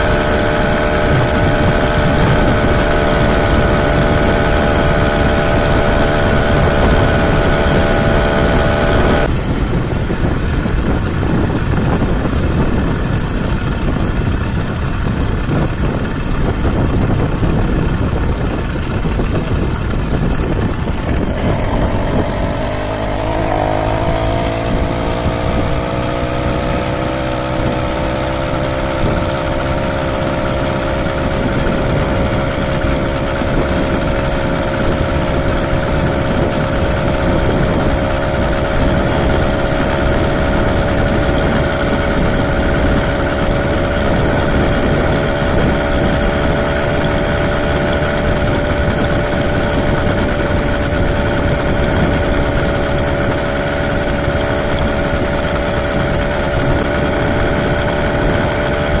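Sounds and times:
small engine running steadily: 0:00.0 - 0:59.0
wind on microphone: 0:00.0 - 0:59.0.

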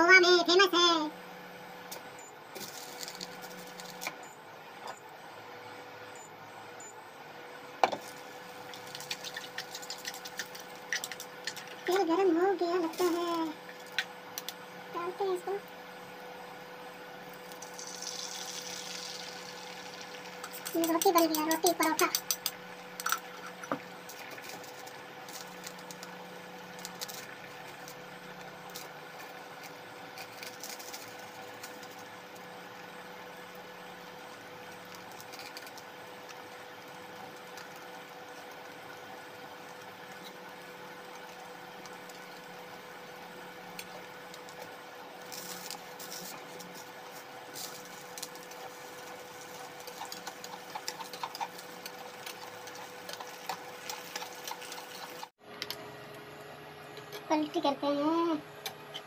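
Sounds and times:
induction cooktop hum: 0:00.0 - 0:59.0
faint sizzling in pan: 0:17.5 - 0:21.8.

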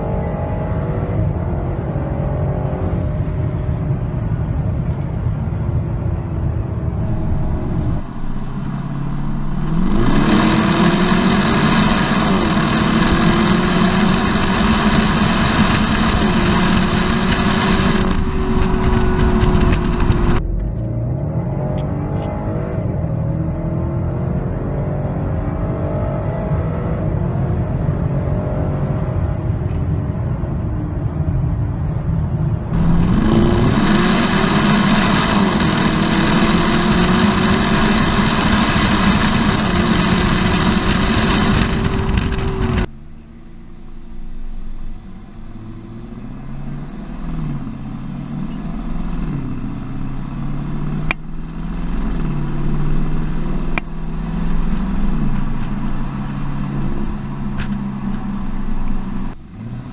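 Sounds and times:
road and wind noise: 0:00.0 - 0:59.9
wind rushing over microphone: 0:00.9 - 0:20.5, 0:26.5 - 0:42.9
car exhaust note: 0:06.7 - 0:20.6, 0:32.7 - 0:49.0
car engine accelerating hard: 0:06.9 - 0:29.6, 0:32.7 - 0:59.9.

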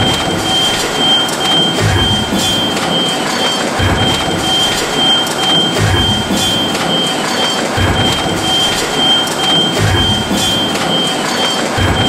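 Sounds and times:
industrial machine noise: 0:00.0 - 0:12.0.

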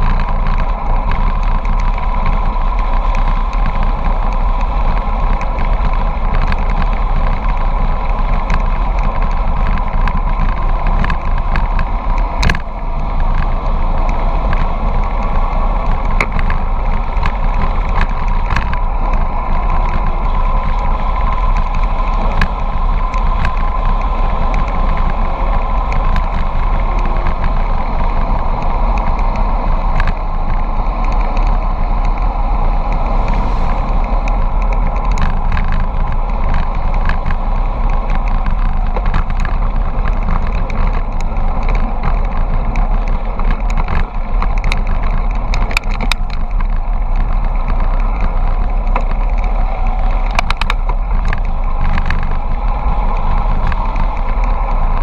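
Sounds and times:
small clicks: 0:00.0 - 0:55.0
wind rushing over microphone: 0:00.0 - 0:55.0.

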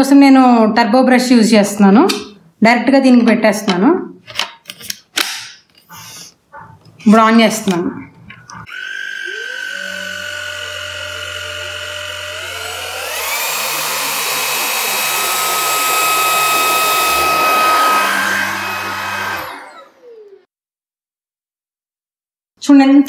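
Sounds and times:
handheld vacuum cleaner whining: 0:08.4 - 0:20.5.

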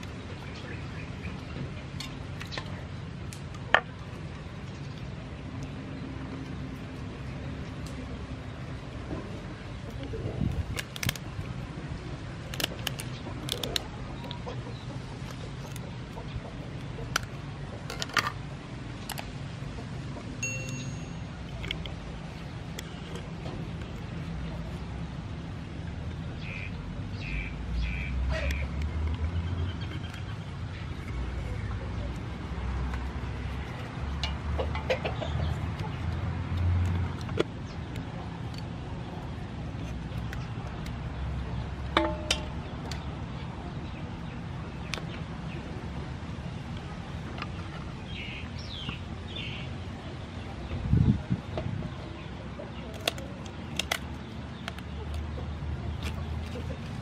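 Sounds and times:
wind rumble on microphone: 0:10.1 - 0:10.8, 0:50.7 - 0:52.1
scissors cracking lobster shell: 0:10.6 - 0:11.4, 0:12.4 - 0:13.9, 0:52.9 - 0:55.2.

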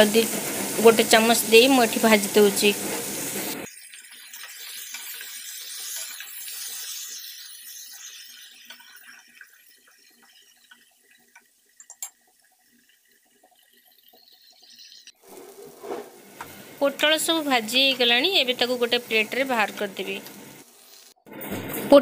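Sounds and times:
vegetables sizzling in oil: 0:00.0 - 0:22.0
spatula scraping: 0:15.2 - 0:16.6.

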